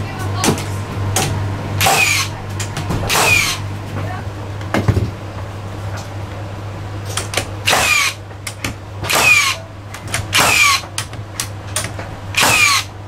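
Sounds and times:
nail gun firing: 0:01.8 - 0:02.3, 0:03.1 - 0:03.6, 0:07.7 - 0:08.2, 0:09.1 - 0:09.6, 0:10.3 - 0:10.9, 0:12.3 - 0:12.9.

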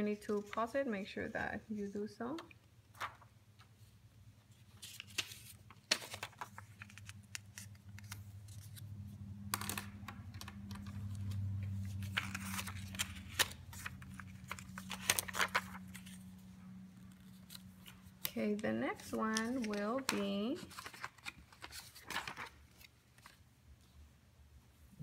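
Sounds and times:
low steady hum: 0:00.0 - 0:25.0
paper rustling and sliding: 0:02.9 - 0:03.9, 0:04.5 - 0:18.2, 0:19.0 - 0:23.4.

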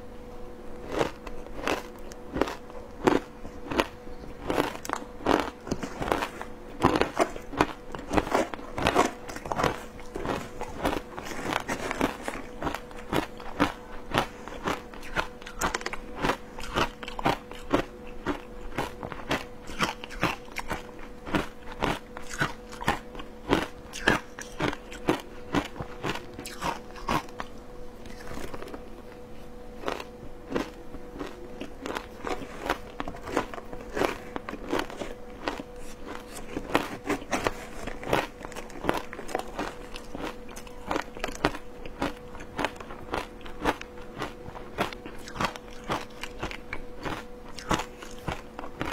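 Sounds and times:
crunching and chewing shaved ice: 0:00.7 - 0:48.9.

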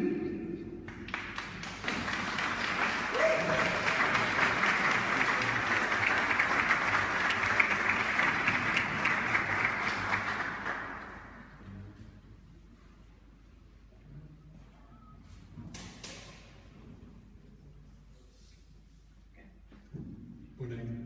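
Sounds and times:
audience applauding: 0:00.9 - 0:11.6.

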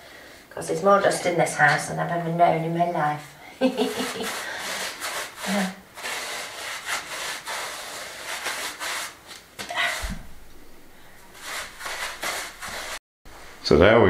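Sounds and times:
paintbrush scrubbing on stone: 0:03.6 - 0:09.3, 0:11.3 - 0:13.0
low thump: 0:10.0 - 0:11.0.

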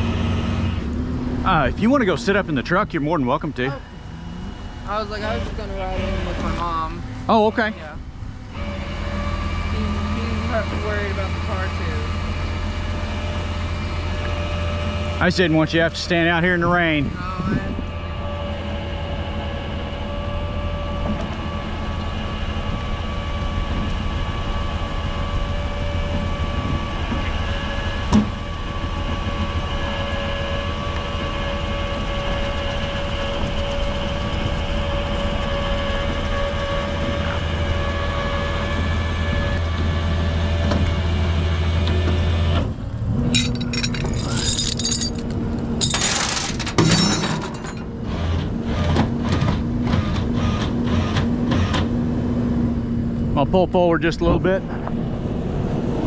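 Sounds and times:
tow truck winch humming and whining: 0:00.0 - 0:53.4, 0:54.6 - 0:56.0
knocks and clatters: 0:43.3 - 0:47.9.

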